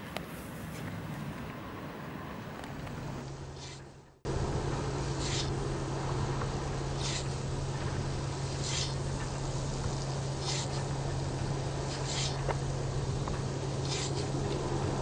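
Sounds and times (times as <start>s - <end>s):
steady low hum: 0.0s - 15.0s
rear wiper swishing: 6.2s - 15.0s
washer spraying: 6.8s - 14.4s.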